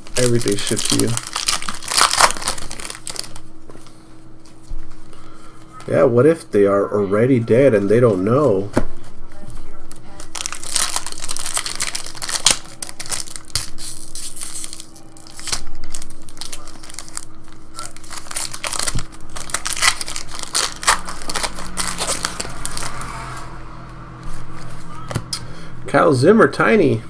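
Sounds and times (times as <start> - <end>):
foil wrapper crinkling and tearing: 0.0 - 3.5, 10.1 - 23.0.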